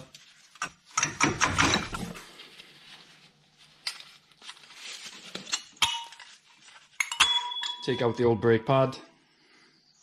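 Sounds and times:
ringing metal clink: 7.0 - 8.3.

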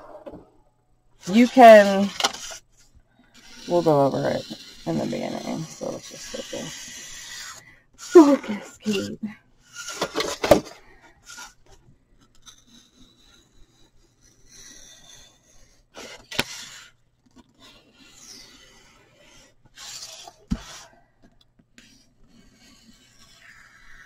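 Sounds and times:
marker rubbing on board: 1.2 - 2.6, 3.4 - 9.1, 12.4 - 21.0, 21.8 - 24.0
utility knife scraping through board: 1.3 - 2.6, 3.4 - 10.6, 12.4 - 21.0, 21.8 - 24.0.

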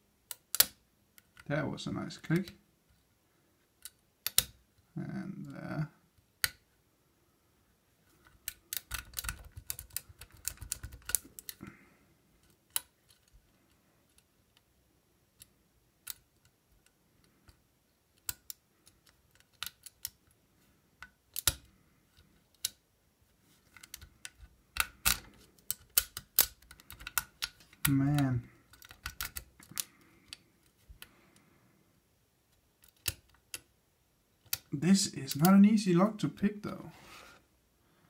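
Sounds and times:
lock pick clicking and scraping: 0.3 - 1.5, 3.8 - 4.6, 8.1 - 11.6, 12.4 - 14.7, 15.3 - 20.4, 21.0 - 22.8, 23.6 - 31.1, 32.5 - 33.7, 34.4 - 34.7.

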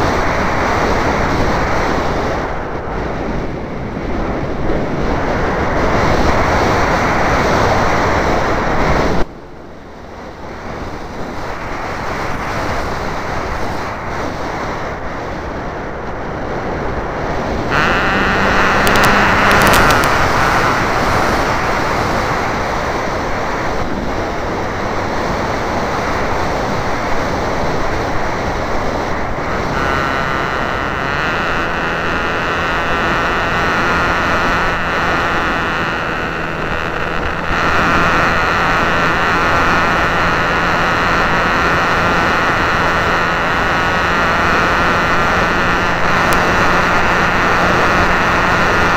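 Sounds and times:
steady humming tone: 0.0 - 48.9
wind rushing over microphone: 0.0 - 48.9
model airplane motor: 10.8 - 14.5, 17.4 - 48.9.

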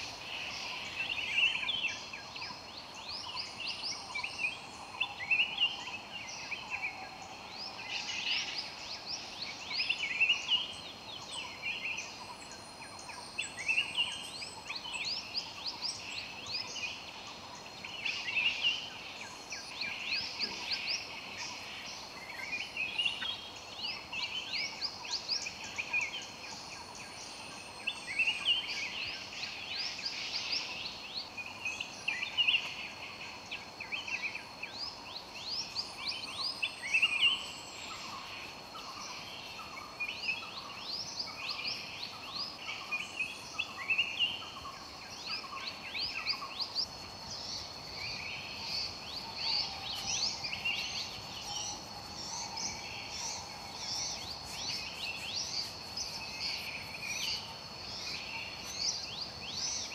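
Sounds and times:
high-pitched insect drone: 41.3 - 59.9.

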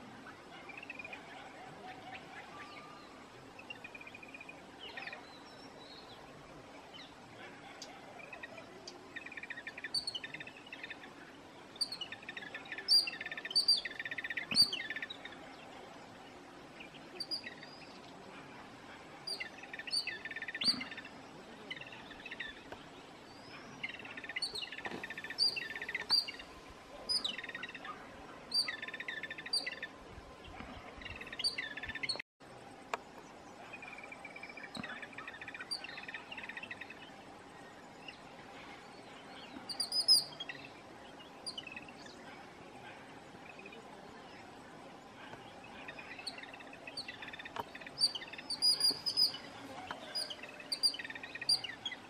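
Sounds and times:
birds chattering: 16.8 - 32.2, 38.0 - 52.0.

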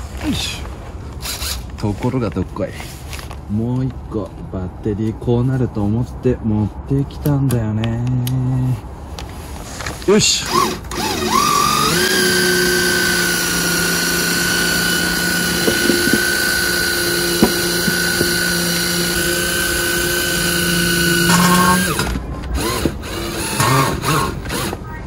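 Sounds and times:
cordless drill whining: 1.2 - 1.7, 10.4 - 24.8.

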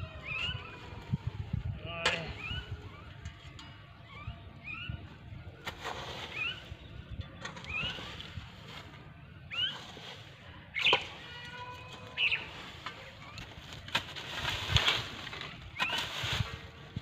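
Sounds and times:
spade scraping dry brush: 0.0 - 17.0
bird chirps: 2.2 - 11.2, 12.0 - 13.4.

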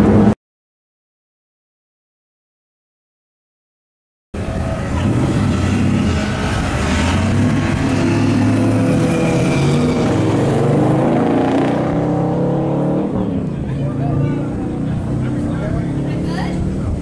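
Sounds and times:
race car engine at low revs: 0.0 - 0.4, 4.4 - 17.0.

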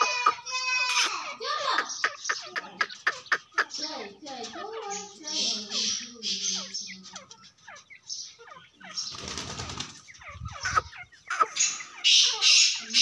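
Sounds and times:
bird chirping softly: 0.0 - 13.0
wings flapping: 9.0 - 11.5.

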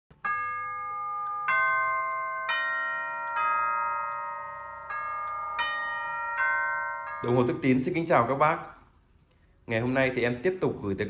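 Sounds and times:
tubular clock chimes ringing: 0.2 - 8.8.

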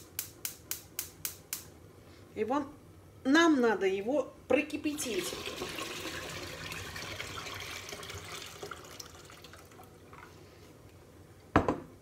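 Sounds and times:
brine pouring into metal pot: 5.1 - 10.3.

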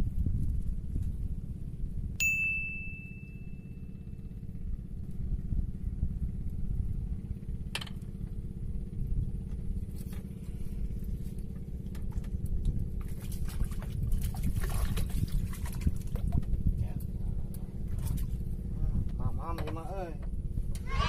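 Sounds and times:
low motor drone: 0.0 - 21.0
fish splashing in water: 12.9 - 16.4.

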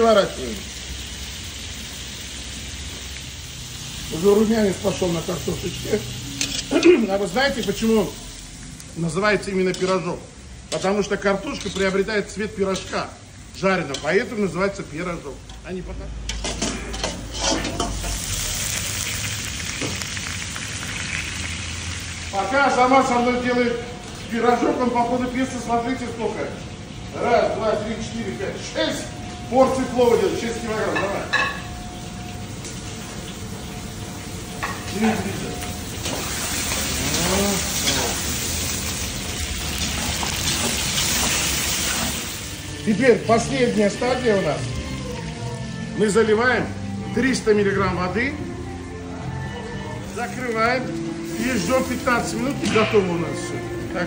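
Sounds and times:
meat sizzling in fat: 0.0 - 15.4, 16.5 - 46.2, 49.5 - 54.0
metal lid clanks: 16.3 - 18.2.

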